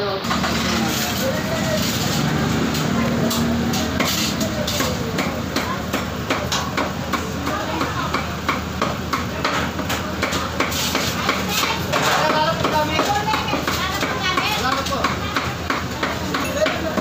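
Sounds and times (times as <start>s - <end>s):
voices: 0.0s - 17.0s.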